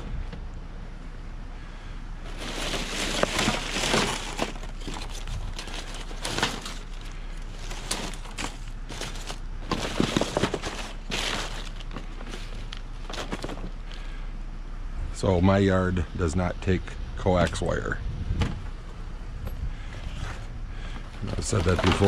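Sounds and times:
plastic bags rustling and crinkling: 2.2s - 14.0s, 21.3s - 22.0s.

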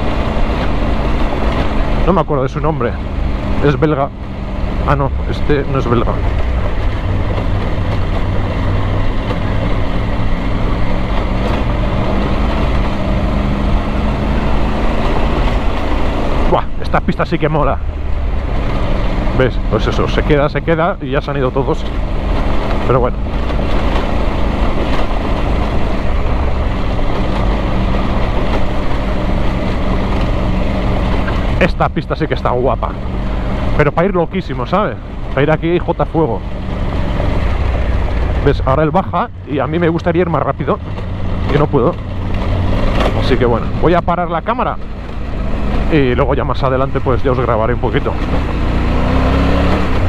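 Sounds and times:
constant rushing noise: 0.0s - 50.0s
motorcycle engine running: 0.0s - 50.0s
wind rush: 3.0s - 19.7s.

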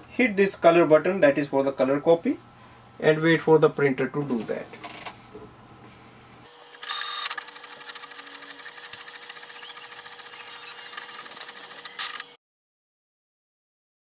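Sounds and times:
printer whirring burst: 6.4s - 12.4s
printer ticking and humming: 6.5s - 12.3s.

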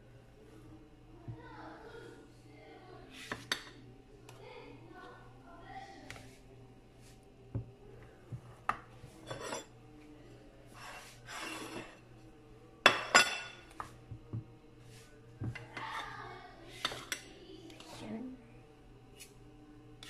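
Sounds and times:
turner scraping glass dish: 9.2s - 9.7s, 10.8s - 12.0s.

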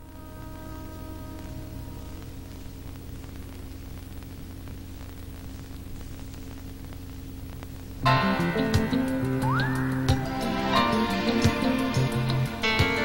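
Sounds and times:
faint crackling ticks: 0.0s - 8.1s
film soundtrack hiss: 0.0s - 13.0s
low mains hum: 0.0s - 13.0s
held music notes: 8.0s - 13.0s.

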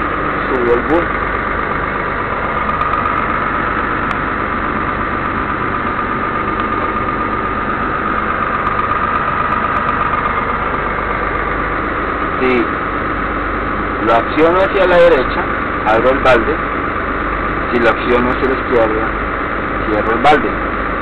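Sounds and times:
diesel engine running: 0.0s - 21.0s
high-pitched whine: 0.0s - 21.0s.

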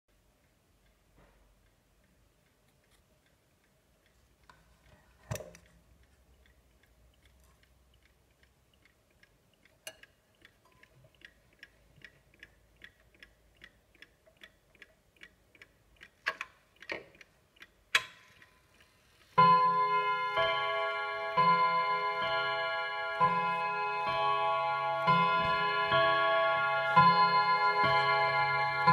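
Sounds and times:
mantel clock ticking: 0.1s - 28.9s
clock being handled clicks: 4.5s - 18.9s.

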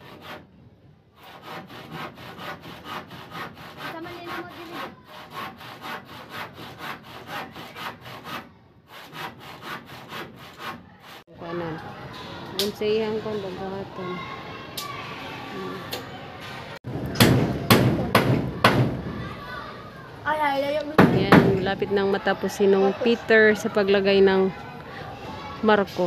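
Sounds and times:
handsaw cutting wood: 0.0s - 0.5s, 1.2s - 11.3s.

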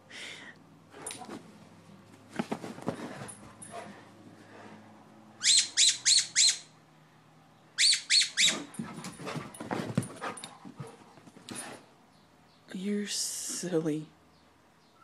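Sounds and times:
soft rustling: 1.2s - 4.7s
squeaky toy squeaking: 5.4s - 6.7s.

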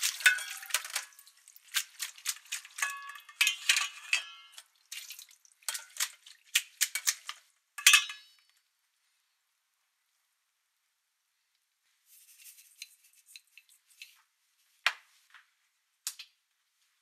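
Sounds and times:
metal bowl clattering: 0.0s - 8.4s.

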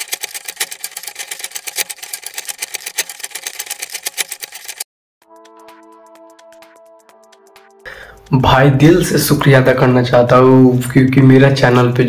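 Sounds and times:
rapid ticking number counter: 0.0s - 4.9s
electronic music with beat: 5.2s - 9.1s.

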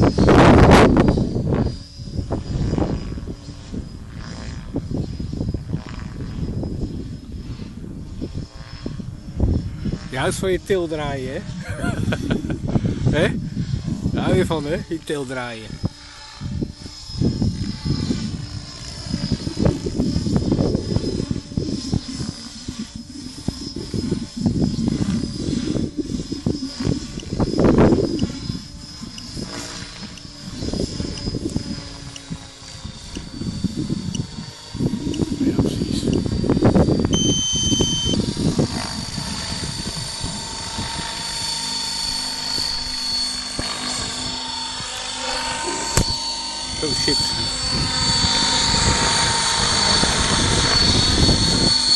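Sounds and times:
rc helicopter high whine: 0.0s - 51.9s
beep: 37.2s - 38.2s.

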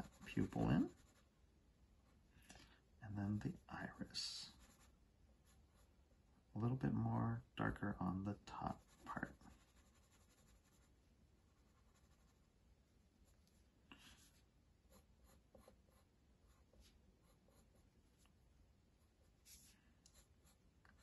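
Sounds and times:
pencil scratching on paper: 0.0s - 1.2s, 4.5s - 4.9s, 8.7s - 10.9s, 11.5s - 12.4s, 14.2s - 17.9s, 19.4s - 21.0s.

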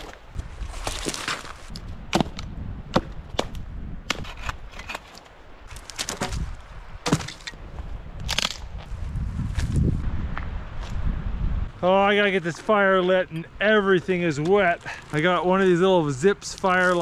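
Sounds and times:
twiggy brush rustling: 0.0s - 2.0s, 4.2s - 10.0s, 13.8s - 17.0s
dry branches snapping: 0.8s - 7.6s, 8.2s - 8.9s.

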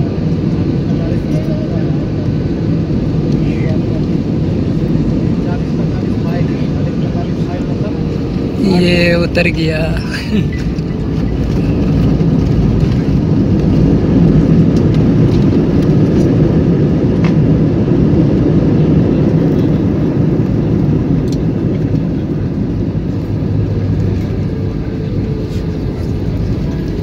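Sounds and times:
airliner cabin low rumble: 0.0s - 27.0s.

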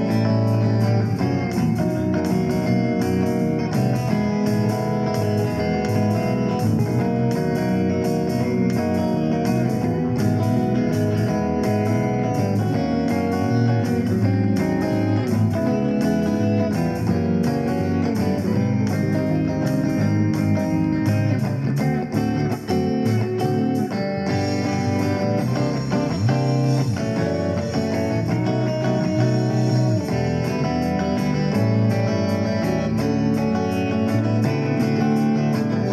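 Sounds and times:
guitar instrumental music: 0.0s - 35.9s.

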